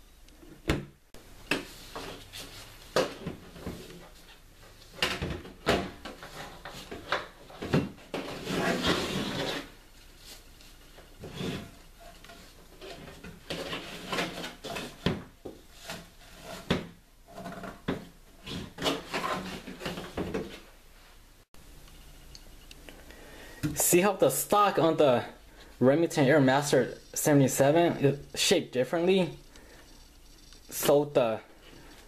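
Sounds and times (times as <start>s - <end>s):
scraping on tabletop: 6.0s - 10.4s, 11.2s - 20.6s.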